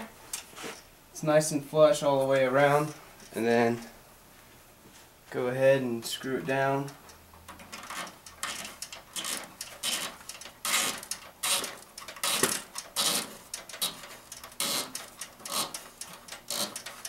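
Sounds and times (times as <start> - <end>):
fitting scraping: 6.3 - 17.0.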